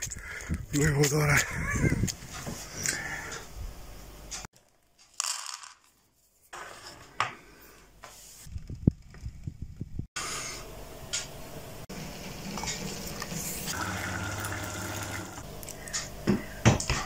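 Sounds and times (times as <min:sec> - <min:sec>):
eggs boiling in saucepan: 0:11.9 - 0:15.4.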